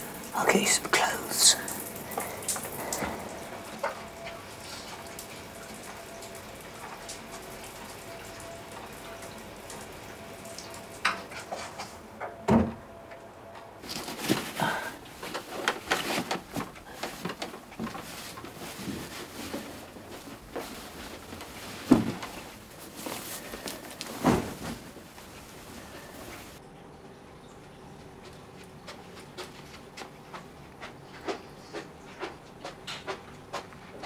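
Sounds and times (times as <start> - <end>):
water running: 0.0 - 12.1
door shutting: 12.5 - 12.9
bed linen rustling: 13.8 - 26.6.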